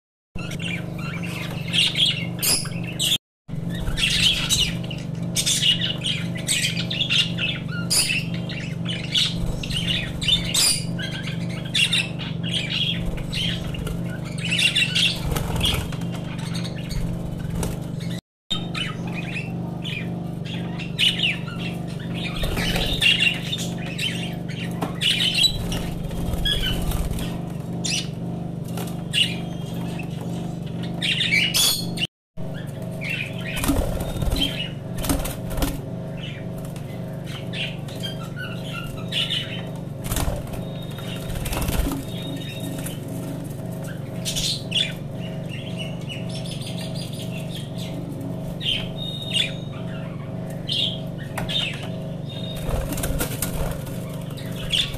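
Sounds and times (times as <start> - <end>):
budgerigars chattering: 0.4 - 17.2, 18.0 - 28.1, 29.1 - 35.0, 43.8 - 54.9
wings fluttering: 1.0 - 18.2, 19.9 - 31.1, 32.6 - 45.2, 51.2 - 54.9.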